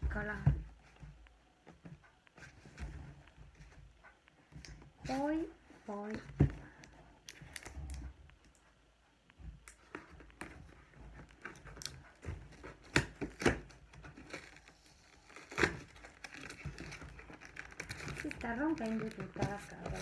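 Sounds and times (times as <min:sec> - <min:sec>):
cardboard crinkling and tearing: 0:09.8 - 0:20.0.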